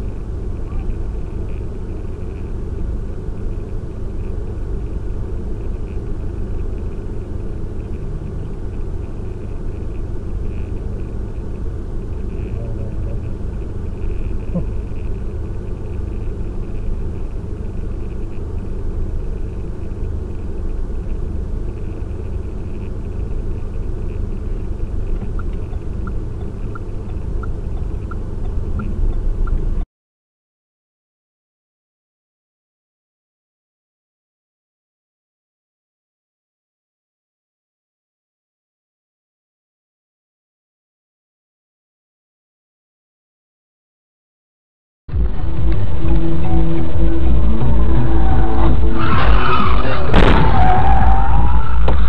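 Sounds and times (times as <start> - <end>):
car engine and road rumble: 0.0 - 29.9, 45.1 - 52.0.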